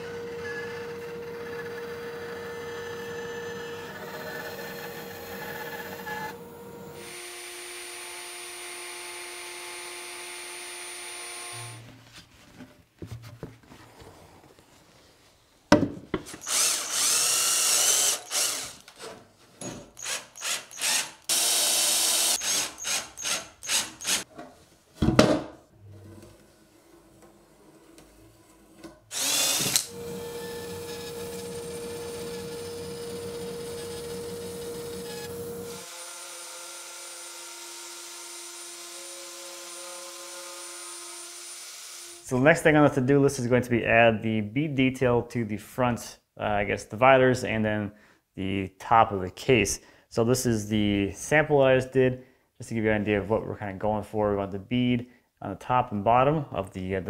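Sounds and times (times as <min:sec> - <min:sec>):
drill driving screws into wood: 0:07.0 - 0:11.8, 0:16.3 - 0:24.3, 0:29.1 - 0:42.2
bandsaw running: 0:16.3 - 0:19.1, 0:19.9 - 0:24.3, 0:29.1 - 0:42.3.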